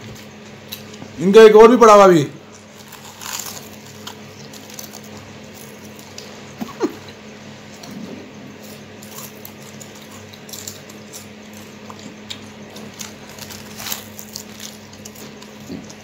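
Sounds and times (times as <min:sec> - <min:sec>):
steady low hum: 0:00.0 - 0:16.0
potato chips crunching: 0:02.4 - 0:07.1, 0:08.6 - 0:16.0.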